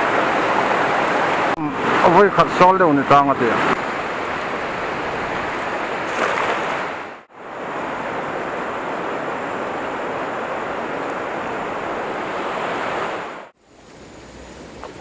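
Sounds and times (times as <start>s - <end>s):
river flowing over stones: 3.4s - 13.5s
cast net splashing into water: 5.5s - 6.9s.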